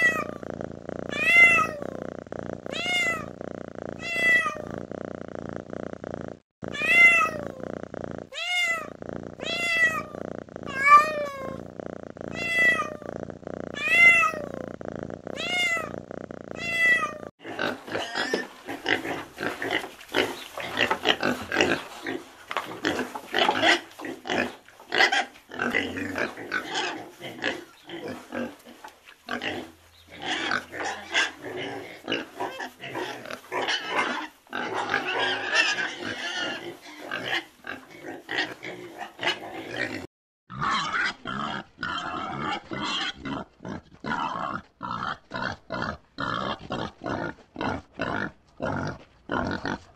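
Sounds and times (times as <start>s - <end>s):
cat meowing: 0.0s - 2.0s, 2.6s - 4.8s, 6.6s - 7.7s, 8.3s - 11.7s, 12.3s - 14.7s, 15.3s - 17.3s
piglets squealing and grunting: 0.0s - 3.4s, 6.6s - 11.7s, 12.3s - 49.8s
cat purring: 0.0s - 17.4s.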